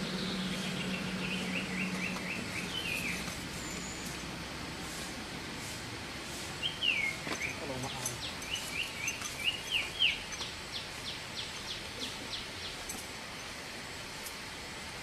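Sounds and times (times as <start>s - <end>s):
small birds chirping: 0.0s - 4.3s, 6.3s - 13.6s.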